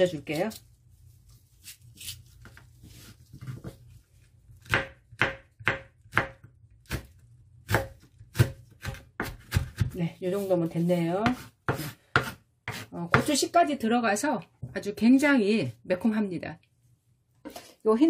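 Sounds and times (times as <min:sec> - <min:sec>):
knife chopping on cutting board: 0:04.6 - 0:10.0, 0:11.2 - 0:13.4.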